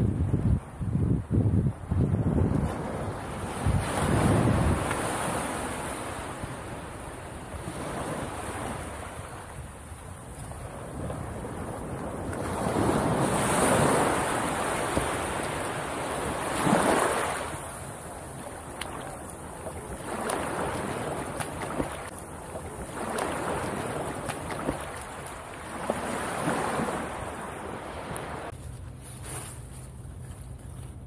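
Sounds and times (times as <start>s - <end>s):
small waves washing on beach: 1.7s - 28.6s.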